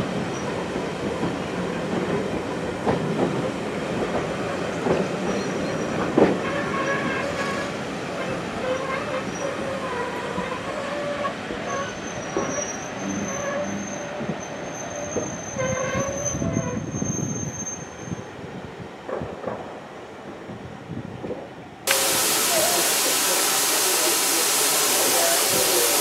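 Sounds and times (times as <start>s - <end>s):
train wheels rumbling and clattering: 0.0s - 22.2s
metallic wheel squeals: 8.7s - 18.2s.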